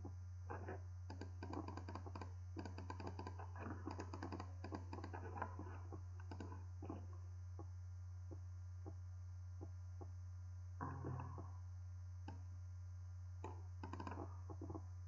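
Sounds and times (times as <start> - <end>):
low electrical hum: 0.0 - 15.0
keyboard and mouse clicking: 1.1 - 5.2, 6.2 - 6.6, 13.4 - 14.8.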